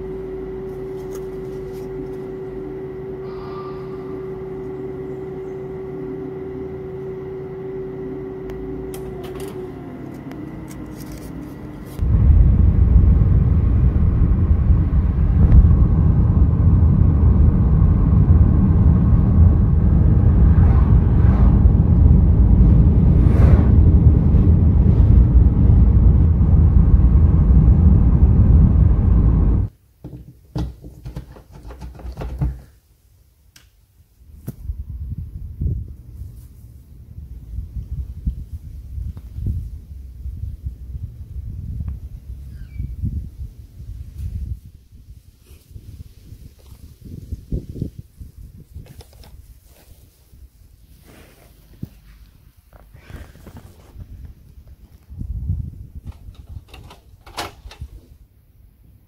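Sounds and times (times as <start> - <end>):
loud low rumbling on boards: 9.7 - 29.7.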